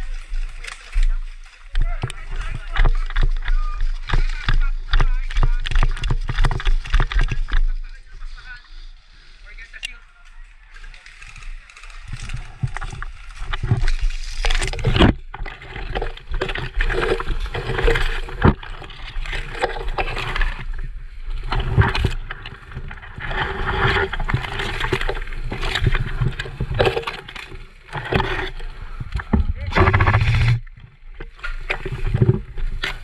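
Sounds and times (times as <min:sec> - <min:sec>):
camera handling rumble: 0:21.5 - 0:33.0.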